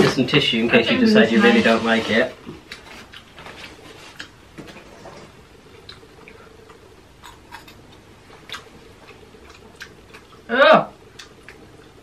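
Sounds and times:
faint steady hum: 0:00.0 - 0:12.0
clicks and ticks of eating: 0:02.6 - 0:04.8, 0:05.8 - 0:12.0.

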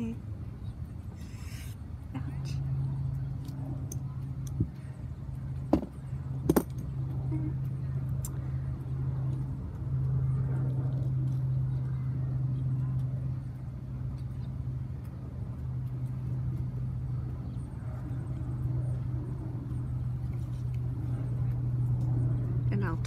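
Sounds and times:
low rumbling background: 0:00.0 - 0:23.0.

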